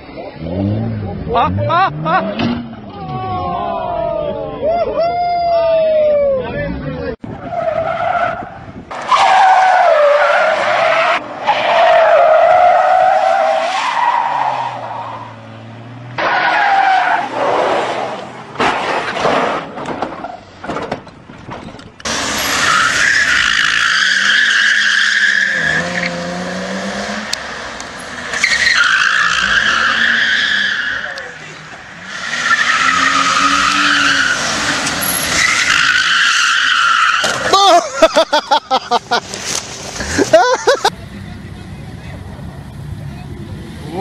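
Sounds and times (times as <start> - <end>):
engines revving: 0.0 - 3.8, 6.7 - 20.2, 22.0 - 44.0
car tyres squealing: 7.2 - 20.9, 21.6 - 38.4.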